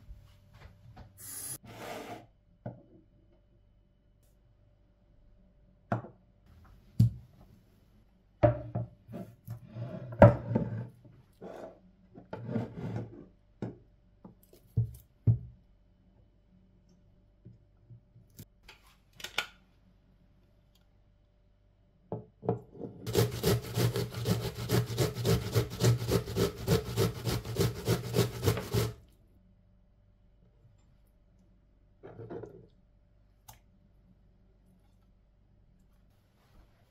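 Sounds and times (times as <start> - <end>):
onion grated on metal grater: 23.1 - 29.0.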